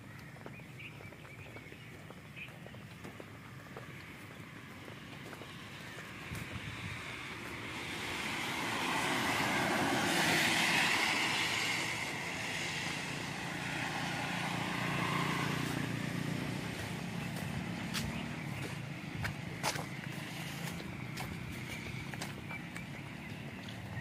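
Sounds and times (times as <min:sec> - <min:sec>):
motorcycle engine passing: 0:03.9 - 0:24.0
tyre hiss on wet road: 0:05.4 - 0:18.0, 0:19.6 - 0:21.2.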